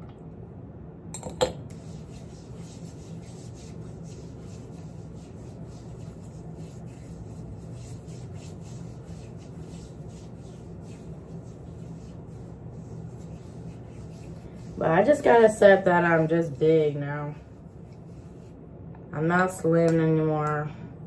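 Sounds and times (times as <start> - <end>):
low background hum: 0.0 - 21.0
hands rubbing skin: 1.7 - 16.5, 17.4 - 18.6.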